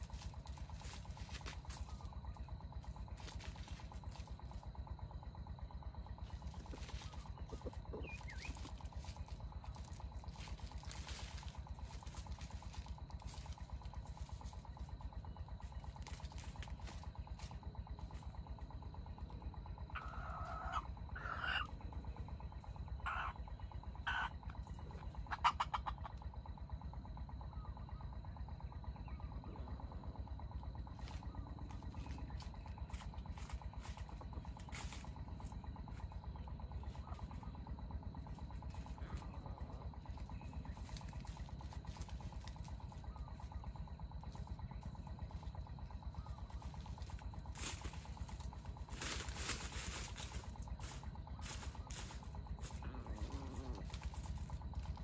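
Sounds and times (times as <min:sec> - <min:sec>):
low outdoor rumble: 0:00.0 - 0:55.0
junglefowl clucking: 0:06.2 - 0:14.6, 0:19.8 - 0:26.8, 0:46.0 - 0:55.0.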